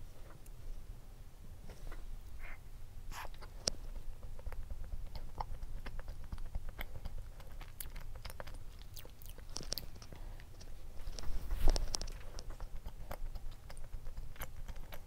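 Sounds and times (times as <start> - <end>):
close-up chewing: 2.3 - 15.0
biting into food: 4.4 - 15.0.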